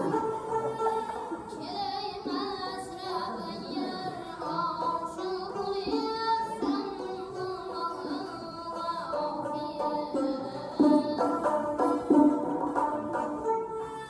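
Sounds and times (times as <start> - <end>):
high singing voice with vibrato: 0.0 - 12.5
string accompaniment: 0.0 - 14.0
frame drum: 9.8 - 13.6.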